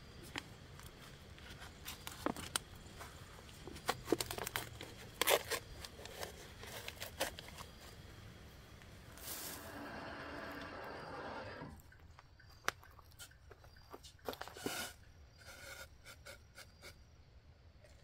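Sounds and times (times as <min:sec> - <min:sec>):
wrapper crinkling and tearing: 0:04.0 - 0:07.7
steady hiss: 0:07.2 - 0:12.0.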